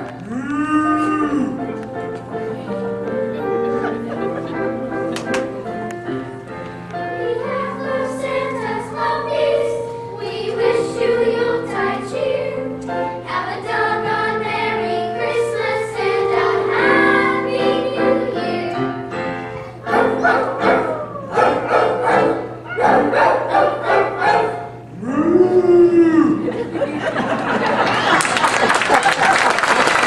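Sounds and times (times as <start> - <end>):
children's choir singing: 6.9 - 24.9.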